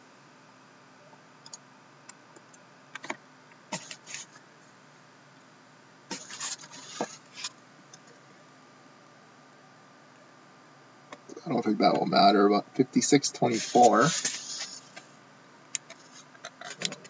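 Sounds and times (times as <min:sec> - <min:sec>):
computer mouse clicks and scrapes: 0:03.0 - 0:04.4, 0:06.1 - 0:07.6, 0:15.8 - 0:17.0.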